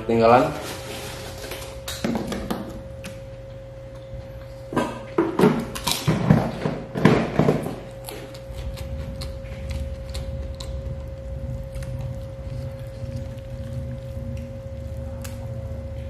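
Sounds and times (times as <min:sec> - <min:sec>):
steady hum: 0:00.0 - 0:16.0
chewing: 0:07.9 - 0:16.0.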